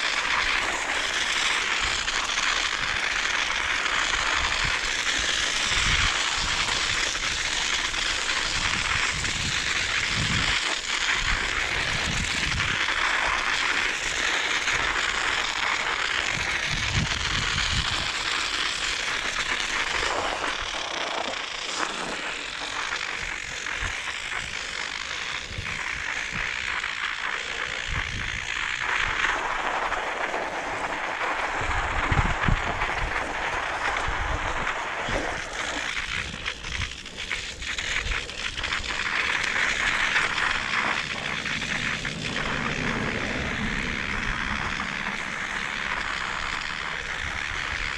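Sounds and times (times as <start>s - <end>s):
bicycle tyres crackling on snow: 0.0s - 47.9s
wind buffeting microphone: 5.6s - 13.4s, 16.3s - 18.2s, 25.2s - 26.8s, 27.6s - 30.0s, 30.6s - 47.9s.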